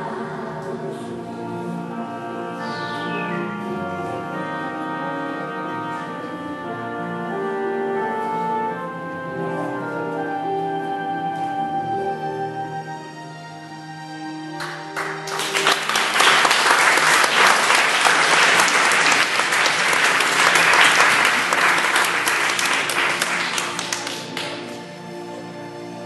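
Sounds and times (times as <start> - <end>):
soft music: 0.0 - 26.0
audience applauding: 14.6 - 24.8.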